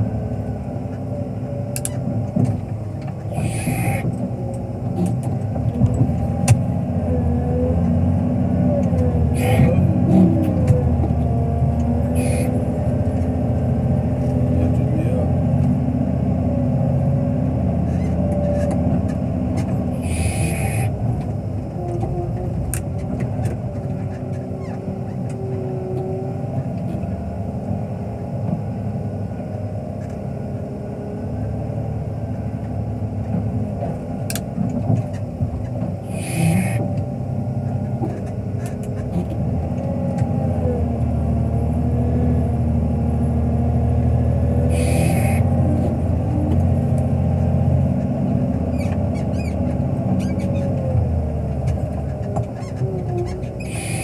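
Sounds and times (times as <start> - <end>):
diesel engine running: 0.0 - 54.0
wavering whining tones: 3.2 - 4.5, 19.8 - 26.3, 36.0 - 37.0, 44.6 - 46.4
short hisses: 36.1 - 36.8.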